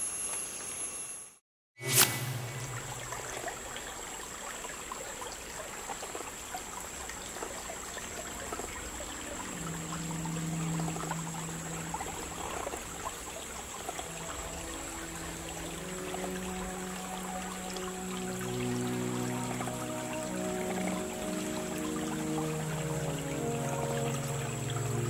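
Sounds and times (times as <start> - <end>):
thin steady high tone: 0.0 - 1.4, 7.5 - 25.0.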